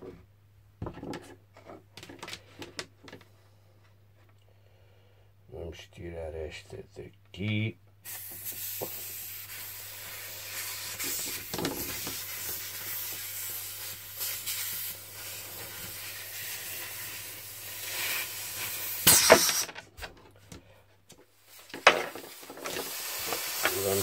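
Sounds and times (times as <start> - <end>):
steady air hiss: 8.0 - 19.7, 21.4 - 24.0
air hose rubbing and rustling: 8.1 - 19.7, 21.3 - 24.0.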